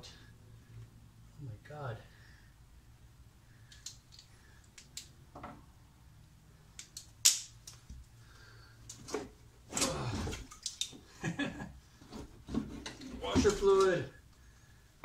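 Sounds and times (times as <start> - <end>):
loud sharp snap: 6.8 - 7.8.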